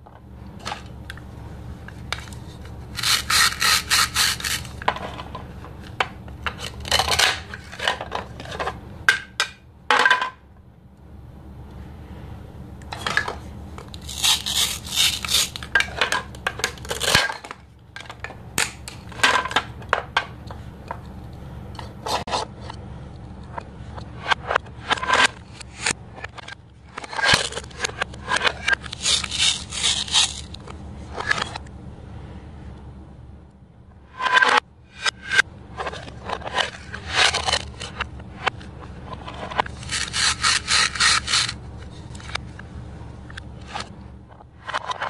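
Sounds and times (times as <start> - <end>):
velcro strips ripping apart: 2.9 - 4.8, 14.0 - 15.7
plastic pieces clacking on board: 3.0 - 10.2, 13.0 - 21.0, 24.5 - 31.6, 34.2 - 41.6.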